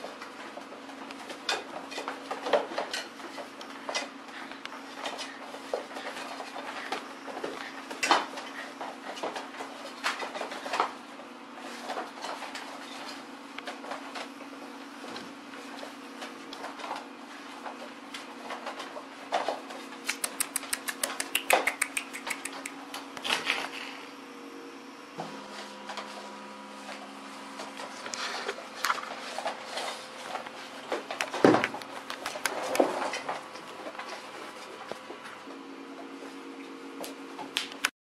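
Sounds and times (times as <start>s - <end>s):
puppies tugging rope toy: 19.4s - 23.7s, 28.1s - 35.2s
claws clicking on vinyl floor: 20.0s - 23.8s, 30.4s - 34.2s.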